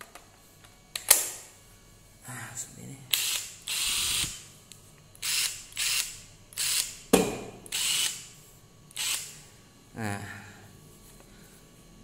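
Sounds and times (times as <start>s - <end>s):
impact wrench bursts: 7.7s - 8.3s.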